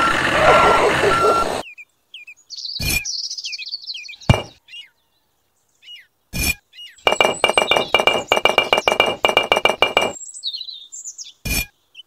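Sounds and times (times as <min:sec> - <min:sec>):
toy truck engine and reversing beeps: 0:00.0 - 0:01.6, 0:07.1 - 0:10.2
birds chirping: 0:00.0 - 0:12.0
clay bricks knocking on wood: 0:04.3 - 0:04.6, 0:07.1 - 0:10.2.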